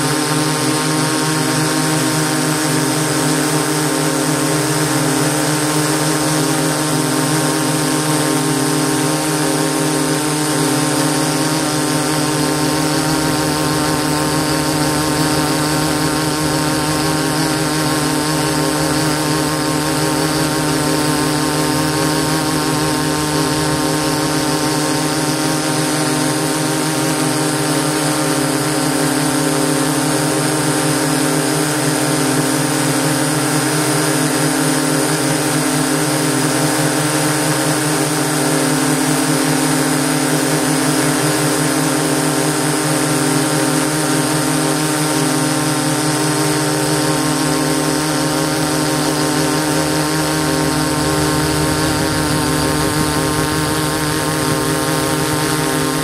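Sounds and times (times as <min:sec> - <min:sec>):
drone motors humming: 0:10.4 - 0:27.8, 0:47.3 - 0:56.0
rushing air: 0:12.6 - 0:26.3, 0:48.0 - 0:56.0.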